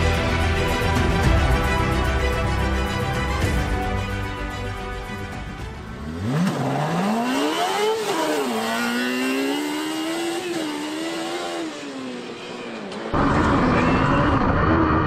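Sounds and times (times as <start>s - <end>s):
loud close car engine: 5.8s - 15.0s.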